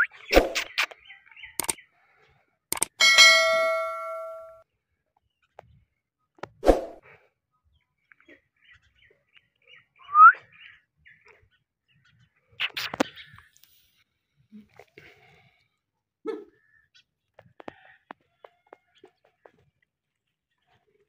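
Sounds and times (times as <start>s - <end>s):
click: 2.7s - 2.9s
metallic bell-like ding: 3.0s - 4.6s.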